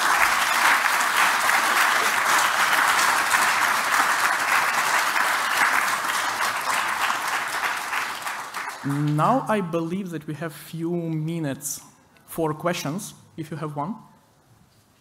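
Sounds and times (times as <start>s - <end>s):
audience applauding: 0.0s - 9.6s.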